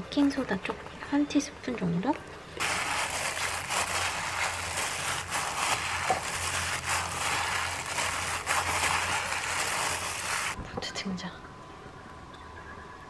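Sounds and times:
dough squelching: 0:02.6 - 0:10.6
plastic glove crinkling: 0:02.6 - 0:10.6.

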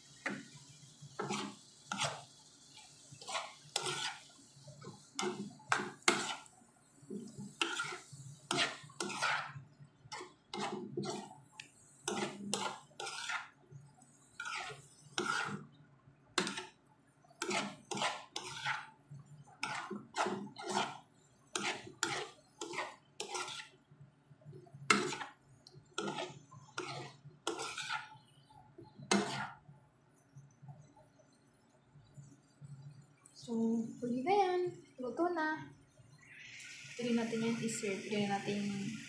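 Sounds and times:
utensil scraping frying pan: 0:00.2 - 0:13.6, 0:14.2 - 0:15.7, 0:16.4 - 0:16.8, 0:17.4 - 0:19.0, 0:19.6 - 0:23.8, 0:24.9 - 0:28.3, 0:29.0 - 0:29.6.

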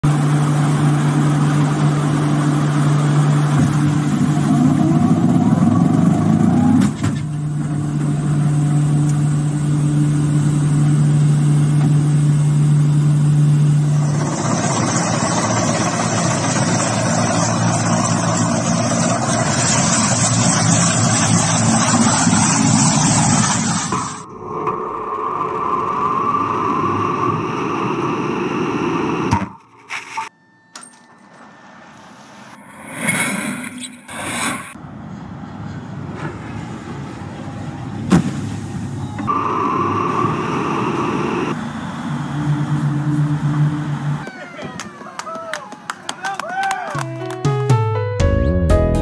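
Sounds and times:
helicopter landing rush: 0:00.0 - 0:29.6, 0:37.0 - 0:46.3
aircraft engine drone: 0:00.0 - 0:29.9, 0:30.8 - 0:44.4.

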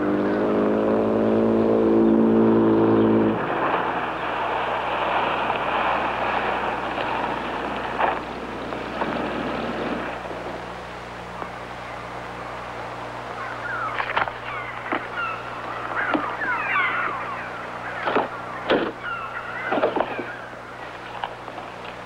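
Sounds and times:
car engine pulling away: 0:00.0 - 0:10.7
road noise: 0:00.0 - 0:22.0.

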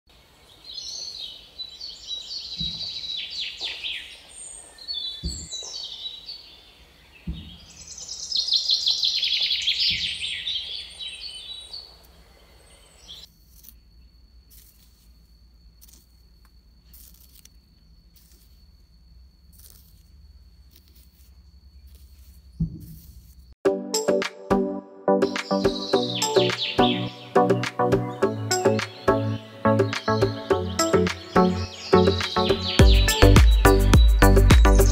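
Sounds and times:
birds chirping: 0:00.2 - 0:14.2, 0:25.1 - 0:34.9
metal tool scratching in sand: 0:13.2 - 0:23.6.

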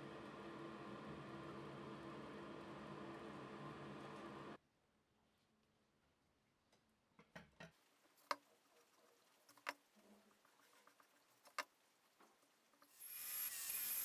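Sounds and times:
angle grinder cutting: 0:13.0 - 0:14.0.

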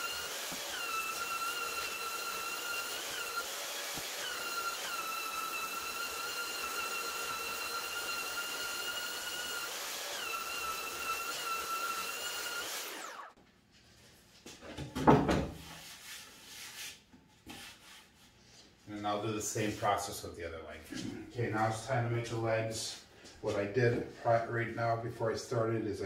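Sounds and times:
belt sander whining: 0:00.0 - 0:13.4.

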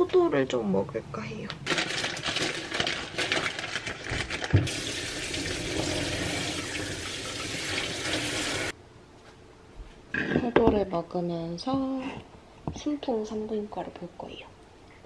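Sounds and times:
plastic bag crinkling: 0:01.6 - 0:05.6
tap water running onto grapes: 0:04.6 - 0:08.7.

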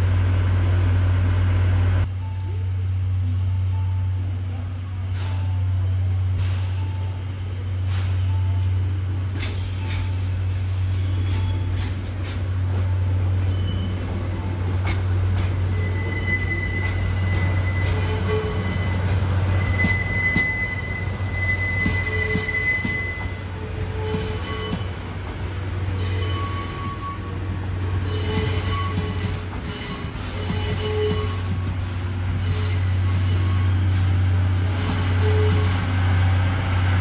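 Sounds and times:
train wheels squealing on rails: 0:05.0 - 0:07.2, 0:09.4 - 0:36.3.

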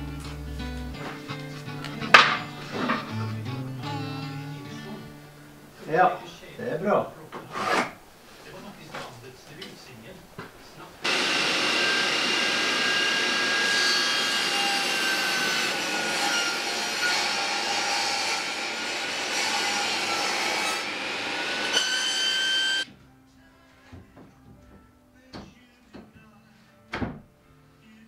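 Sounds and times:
table saw cutting wood: 0:11.0 - 0:22.8.

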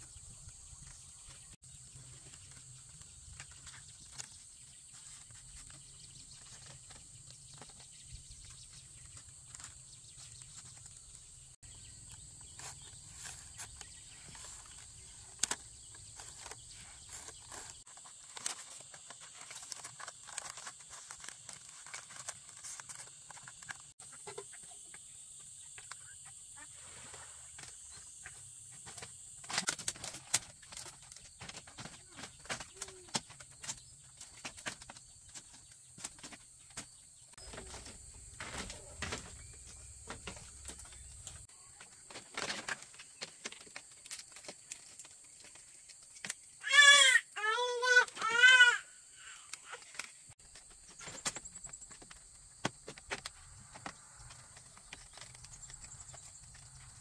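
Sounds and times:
rural outdoor ambience: 0:00.0 - 0:57.0
bamboo strips clicking: 0:52.9 - 0:57.0.

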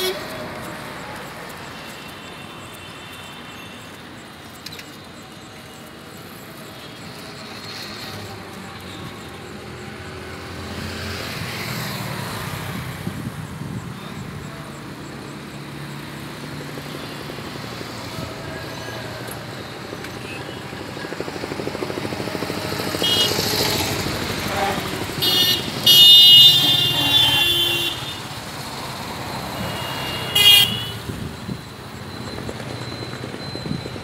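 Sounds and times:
car horns: 0:00.0 - 0:00.5, 0:23.0 - 0:28.3, 0:29.6 - 0:31.2
road traffic: 0:00.0 - 0:34.0.

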